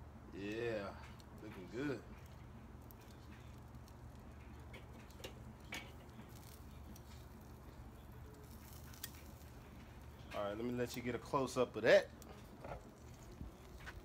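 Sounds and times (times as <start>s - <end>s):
low steady hum: 0.0s - 14.0s
metal tongs clicking on grill grate: 1.1s - 7.2s, 8.3s - 9.5s.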